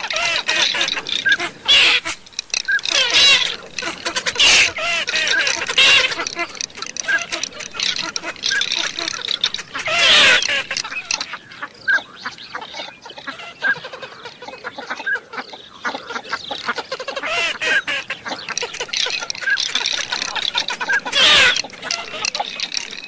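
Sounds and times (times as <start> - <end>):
loud burst of quacking: 0.0 - 11.2, 16.7 - 22.7
ducks whistling and quacking: 0.0 - 23.0.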